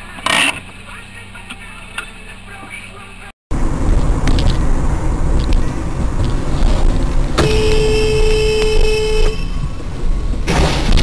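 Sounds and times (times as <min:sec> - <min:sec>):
car driving rumble: 0:00.0 - 0:11.0
car horn steady note: 0:07.4 - 0:09.7.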